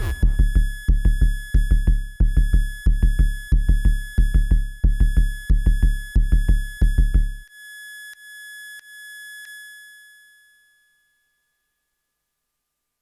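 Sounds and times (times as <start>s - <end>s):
high ringing electronic tone: 0.0s - 0.6s
electronic kick drum hits: 0.0s - 7.4s.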